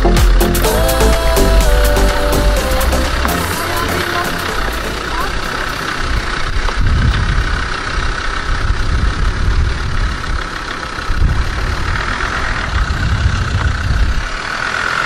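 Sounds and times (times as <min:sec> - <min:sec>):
steady high buzz: 0:00.0 - 0:08.5
engine low rumble: 0:00.0 - 0:15.0.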